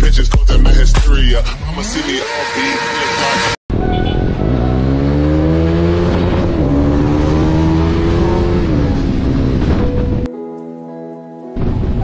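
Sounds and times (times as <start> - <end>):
motorcycle engine accelerating: 3.8 - 10.3.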